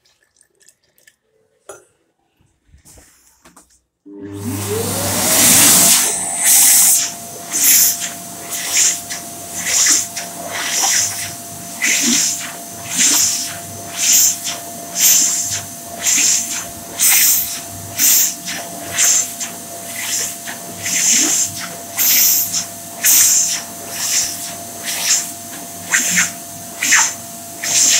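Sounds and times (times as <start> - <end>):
hand dryer running: 4.1 - 27.9.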